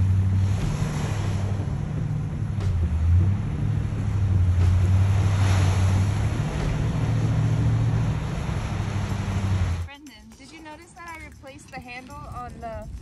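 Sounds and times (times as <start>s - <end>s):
truck engine running: 0.0s - 9.9s
surf: 0.0s - 13.0s
wind: 0.0s - 13.0s.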